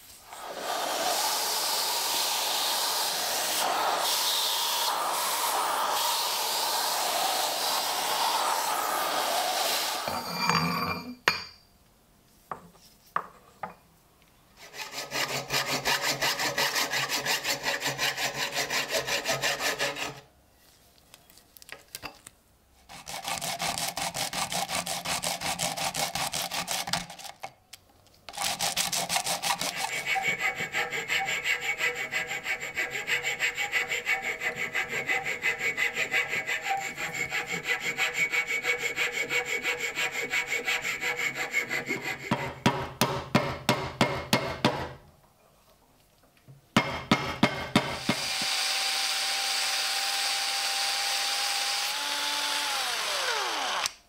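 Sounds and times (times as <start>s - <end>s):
metal file filing brass: 14.6s - 20.2s, 29.0s - 42.5s
metal tube scraping on sandpaper: 28.3s - 42.4s.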